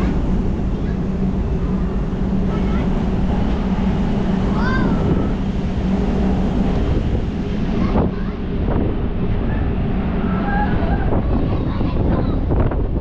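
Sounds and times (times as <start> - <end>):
steady low hum: 0.0 - 13.0
wind buffeting microphone: 0.0 - 13.0.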